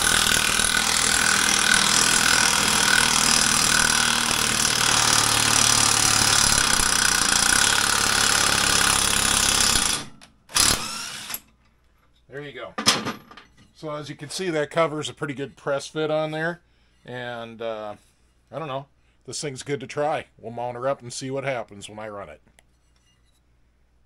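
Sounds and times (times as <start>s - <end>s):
impact wrench hammering: 0.0s - 11.4s.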